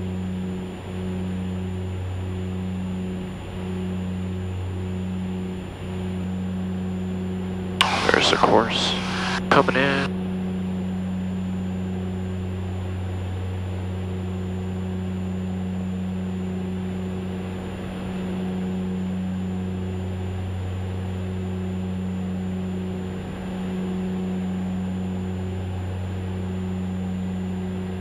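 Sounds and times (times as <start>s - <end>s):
turboprop engines droning: 7.8s - 10.1s.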